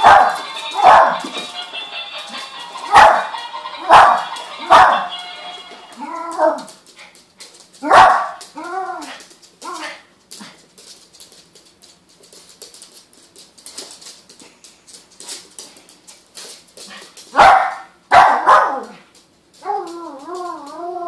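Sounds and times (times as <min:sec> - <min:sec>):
small dog barking: 0:00.0 - 0:01.2, 0:03.9 - 0:05.0, 0:07.8 - 0:08.4, 0:17.4 - 0:19.0.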